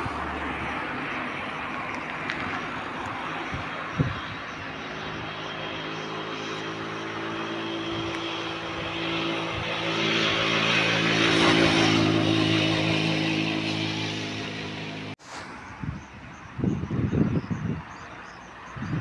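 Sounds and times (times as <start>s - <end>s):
engine running steadily: 0.0s - 15.2s.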